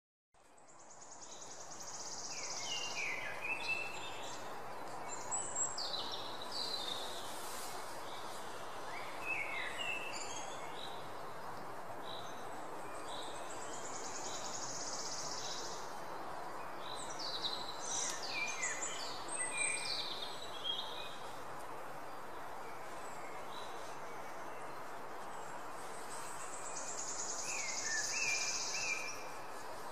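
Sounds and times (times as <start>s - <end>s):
steady background hiss: 0.4s - 29.9s
birds chirping and trilling: 8.0s - 29.9s.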